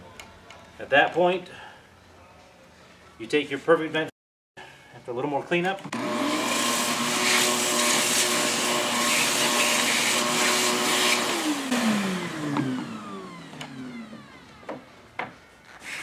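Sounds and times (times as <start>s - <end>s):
shop vacuum running: 5.8s - 16.0s
vacuum motor spinning down: 5.9s - 14.7s.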